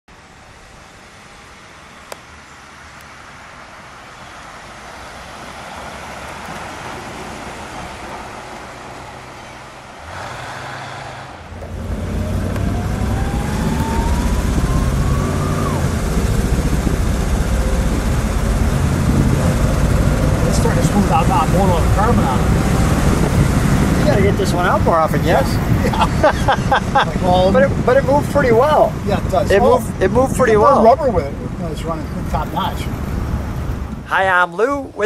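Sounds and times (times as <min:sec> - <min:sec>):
car driving past: 0:04.2 - 0:25.8
engine drone from inside car: 0:10.1 - 0:25.5
faint rising whine: 0:11.3 - 0:23.6.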